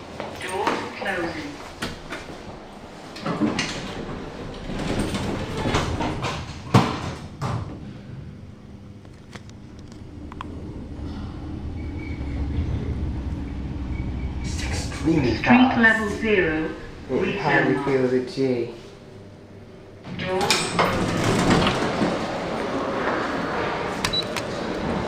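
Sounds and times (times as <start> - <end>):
lift car rumbling: 1.2 - 7.4, 9.6 - 18.9, 19.6 - 25.0
lift doors sliding shut: 1.7 - 7.4, 20.2 - 25.0
lift doors knocking shut: 20.5 - 22.3.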